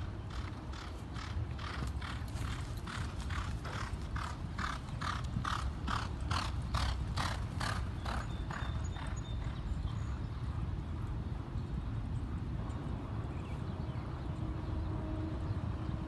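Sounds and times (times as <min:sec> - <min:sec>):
horse hoofbeats on dirt: 0:00.3 - 0:09.9.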